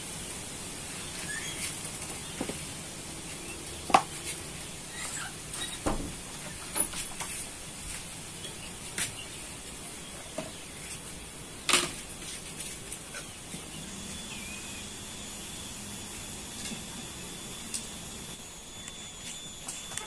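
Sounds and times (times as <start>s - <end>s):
leaf rustling and crackling: 0.0s - 10.0s.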